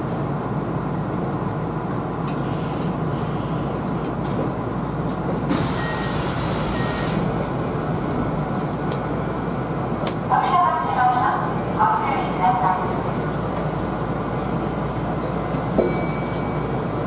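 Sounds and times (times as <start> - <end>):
electric train hum: 0.0 - 17.0.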